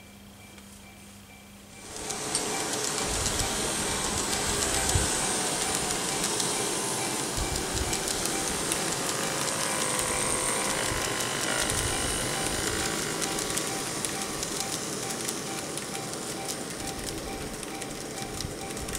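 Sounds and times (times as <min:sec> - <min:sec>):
small motor whirring: 0:01.8 - 0:16.0
wheels clicking on rails: 0:01.8 - 0:18.9.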